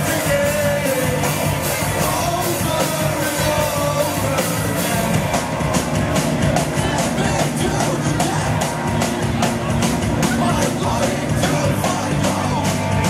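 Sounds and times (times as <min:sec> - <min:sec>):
rock band playing live: 0:00.0 - 0:13.0.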